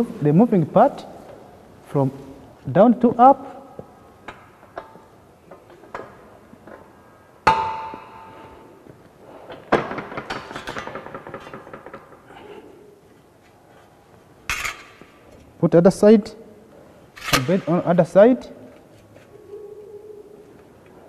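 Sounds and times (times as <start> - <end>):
sharp metallic clank: 17.2 - 17.8.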